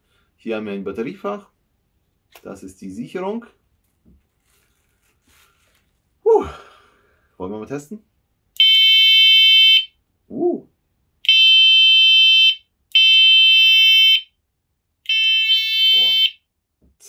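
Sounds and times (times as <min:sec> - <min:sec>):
person exclaiming: 0:06.2 - 0:06.7, 0:10.3 - 0:10.7.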